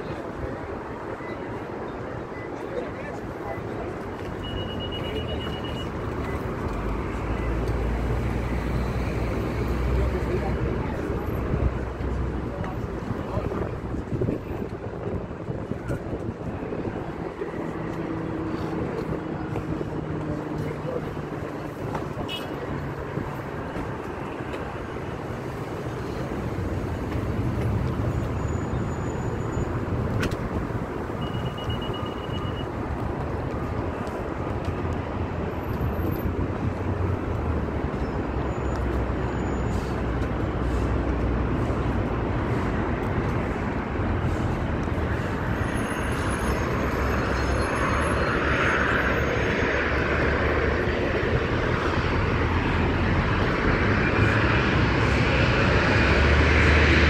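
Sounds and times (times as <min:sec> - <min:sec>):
street traffic noise: 0:00.0 - 0:57.0
airliner jet engines: 0:42.5 - 0:57.0.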